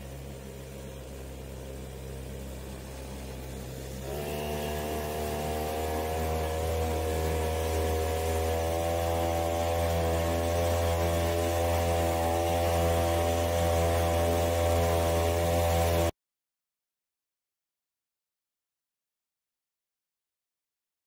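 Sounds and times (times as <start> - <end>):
outboard motor running: 0.0 - 16.1.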